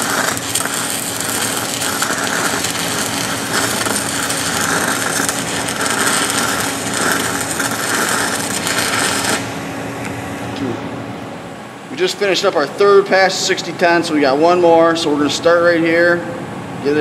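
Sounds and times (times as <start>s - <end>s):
welding arc crackling and sizzling: 0.0s - 10.4s.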